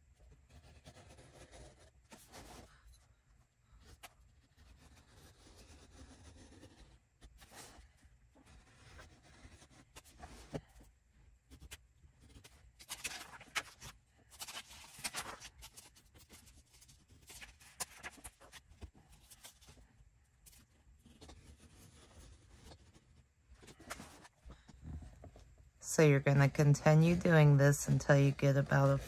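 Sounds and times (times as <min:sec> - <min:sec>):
craft knife scoring paper: 0:03.8 - 0:07.8, 0:08.4 - 0:10.7, 0:20.4 - 0:24.3.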